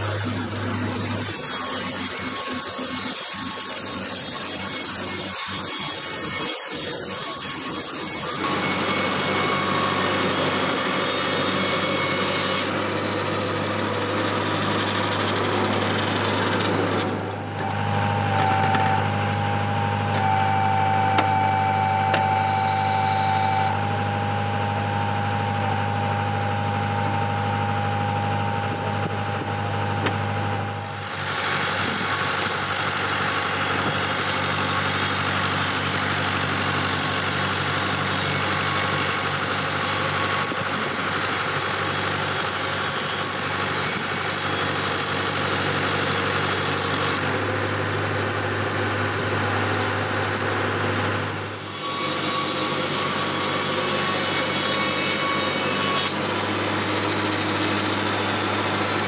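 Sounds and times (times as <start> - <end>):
band blade sawing timber: 0.0 - 19.0, 20.1 - 23.8, 30.7 - 59.0
sawmill generator hum: 0.0 - 59.0.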